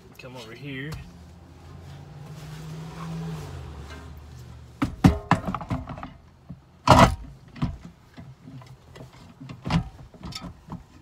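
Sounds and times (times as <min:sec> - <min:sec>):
scraping rustle: 0:00.3 - 0:04.8
handling clicks and knocks: 0:04.8 - 0:11.0.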